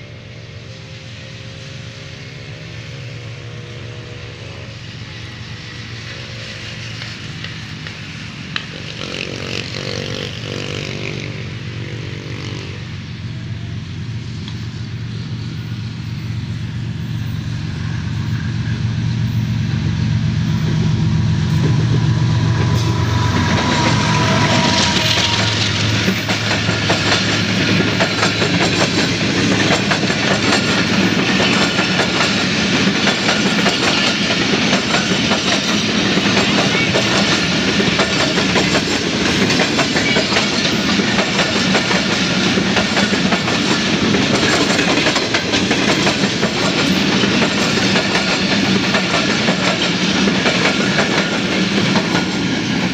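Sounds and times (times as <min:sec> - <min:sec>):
train wheels clattering over rail joints: 0:23.5 - 0:52.9.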